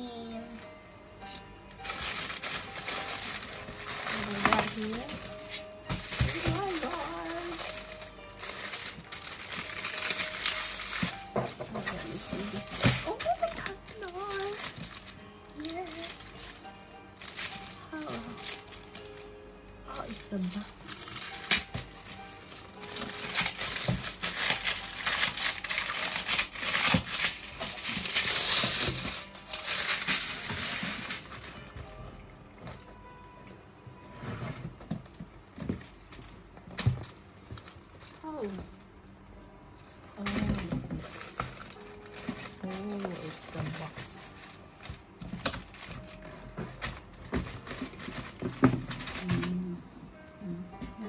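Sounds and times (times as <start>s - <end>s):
plastic packaging crinkling: 0.6s - 33.4s, 34.0s - 49.6s
cardboard boxes tapping and rubbing: 2.0s - 16.5s.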